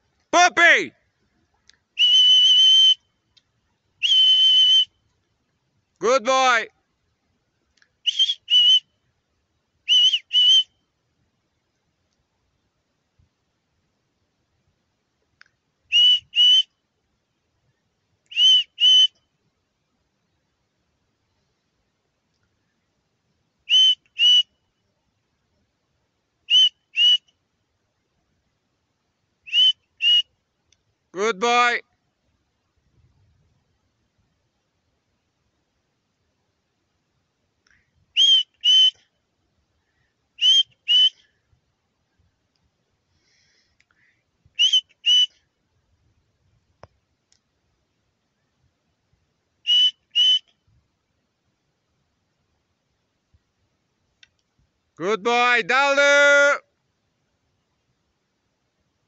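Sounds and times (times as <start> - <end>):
faint click: 1.5 - 1.9, 3.3 - 3.6, 7.7 - 8.0, 11.7 - 12.3, 15.2 - 15.6, 22.2 - 22.6, 30.6 - 30.9, 37.6 - 37.9, 42.5 - 42.8, 43.7 - 44.0, 46.8 - 47.5, 54.1 - 54.6
person whistling two-note calls: 2.0 - 3.0, 4.0 - 4.9, 8.1 - 8.8, 9.9 - 10.7, 16.0 - 16.7, 18.3 - 19.1, 23.7 - 24.5, 26.5 - 27.2, 29.5 - 30.2, 38.2 - 39.0, 40.4 - 41.2, 44.6 - 45.4, 49.7 - 50.5.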